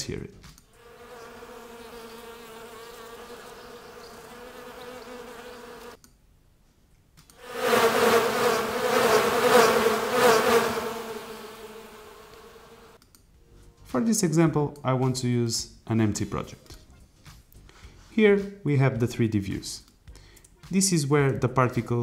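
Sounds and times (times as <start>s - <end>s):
single bee buzzing: 0.7s - 6.0s, 7.4s - 13.0s
swarm of buzzing bees: 0.8s - 6.0s, 7.4s - 13.0s.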